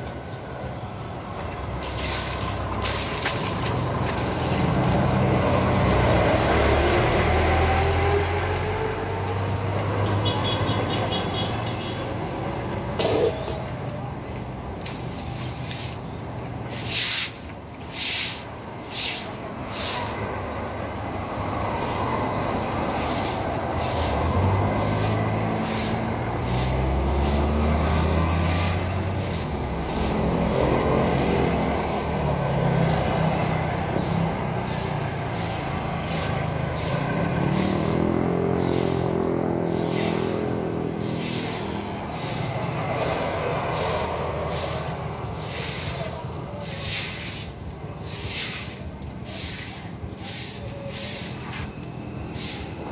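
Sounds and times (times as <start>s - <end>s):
broom sweeping wet concrete: 1.8s - 5.3s, 14.8s - 20.4s, 22.2s - 52.9s
vehicle engine running low: 22.1s - 47.2s.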